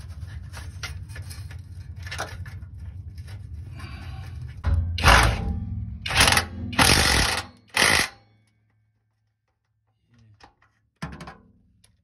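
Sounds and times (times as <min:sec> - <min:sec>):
power driver tightening screw: 0:06.1 - 0:08.1.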